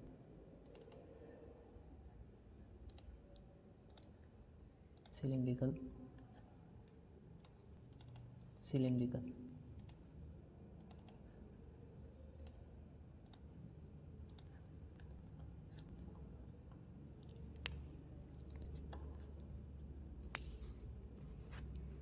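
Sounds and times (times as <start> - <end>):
faint low hum: 0.0 - 22.0
computer mouse clicks: 0.6 - 1.1, 2.8 - 4.2, 4.9 - 5.3, 6.8 - 8.5, 9.8 - 10.1, 10.8 - 11.3, 12.4 - 12.6, 13.2 - 13.5, 14.2 - 22.0.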